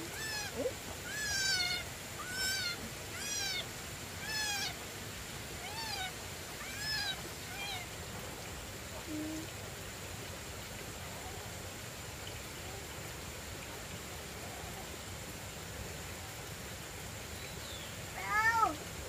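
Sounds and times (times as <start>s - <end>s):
rural outdoor background noise: 0.0s - 19.0s
cat meowing: 0.1s - 3.6s, 4.2s - 4.8s, 5.6s - 7.9s, 18.2s - 18.8s.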